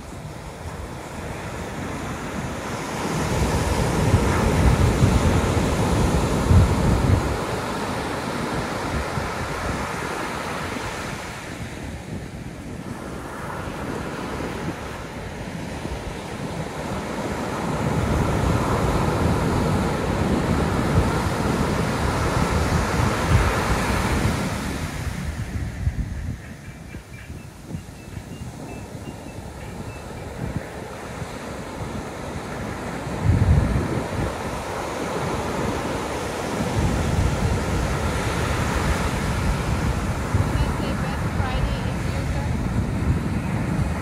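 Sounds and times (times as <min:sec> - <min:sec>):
receding water washing: 0:00.0 - 0:25.7, 0:29.1 - 0:44.0
surf breaking on beach: 0:00.0 - 0:26.0, 0:29.4 - 0:44.0.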